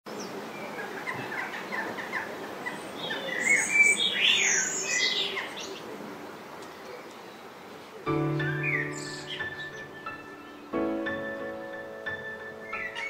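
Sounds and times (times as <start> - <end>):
birds chirping and whistling: 2.7 - 5.7, 8.3 - 10.8, 12.2 - 13.0.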